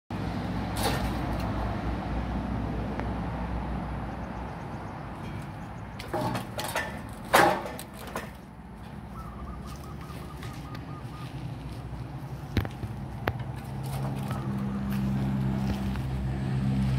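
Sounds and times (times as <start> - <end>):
metal pipes knocking and rattling: 5.2 - 8.5.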